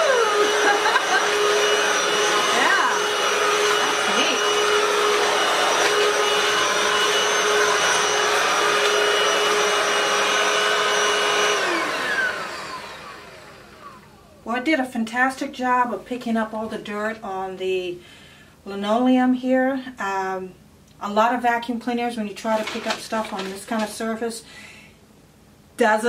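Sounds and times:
stick vacuum running: 0.0 - 14.4
vacuum motor winding down: 0.0 - 14.4.

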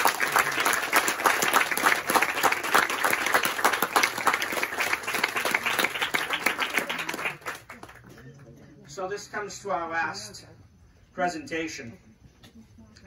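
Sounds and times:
crowd applauding: 0.0 - 8.5.

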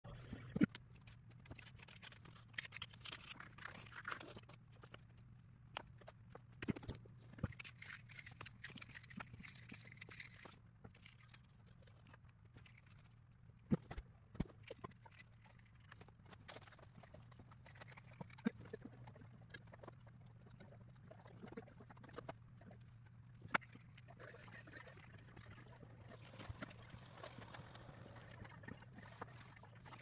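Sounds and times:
wooden parts and paper handled: 0.5 - 20.1.

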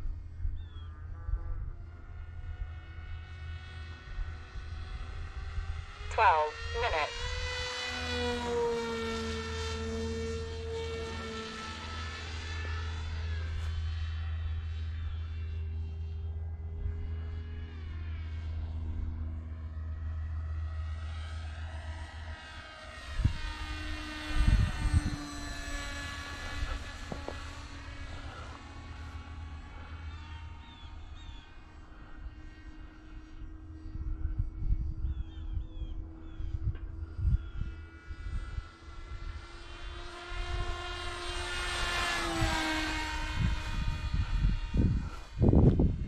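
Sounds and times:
model plane motor whining: 0.6 - 46.0
wind thumps on microphone: 44.6 - 46.0.

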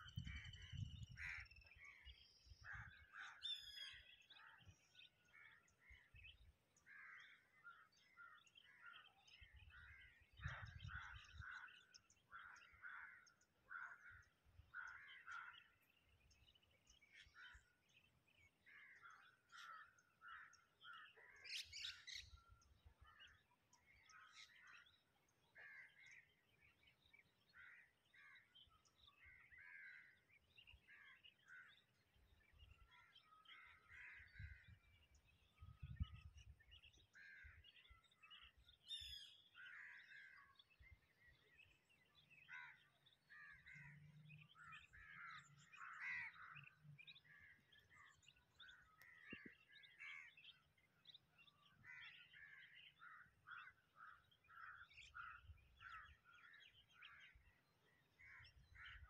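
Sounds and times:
birds calling: 0.0 - 59.0
bird trill: 3.4 - 4.1, 38.2 - 39.5.

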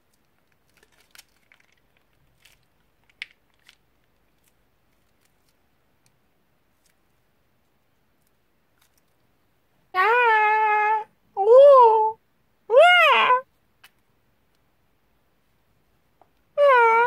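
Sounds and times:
plastic piping bag crinkling: 0.0 - 6.1.

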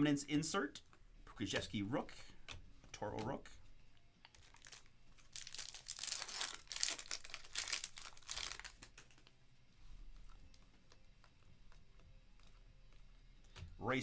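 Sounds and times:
plastic wrapper tearing and crinkling: 4.2 - 9.4.

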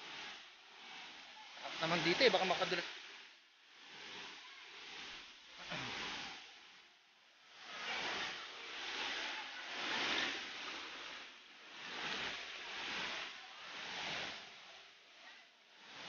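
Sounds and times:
stream rushing over rocks: 1.1 - 3.0.

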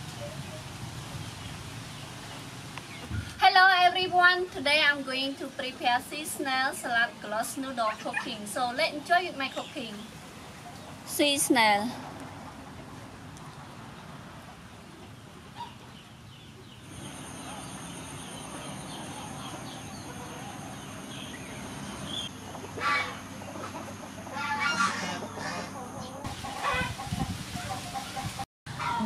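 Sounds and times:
chickens clucking: 6.1 - 11.1, 12.3 - 29.0.

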